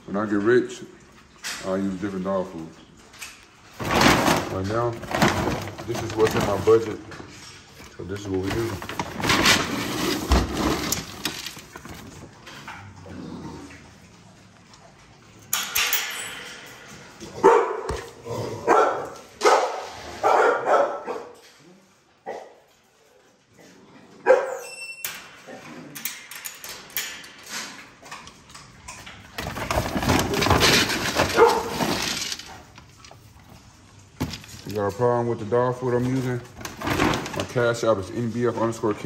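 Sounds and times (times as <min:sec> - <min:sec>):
dogs barking: 0:17.3 - 0:21.4, 0:22.2 - 0:22.6, 0:24.2 - 0:24.6, 0:31.2 - 0:31.9.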